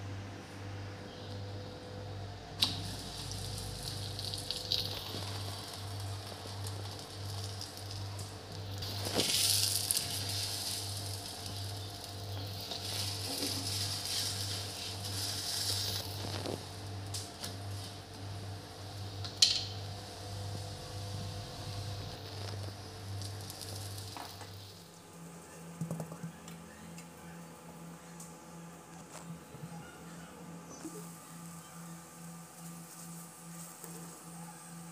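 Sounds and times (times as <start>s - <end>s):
flatbread sizzling on griddle: 2.6s - 18.1s, 21.3s - 25.0s.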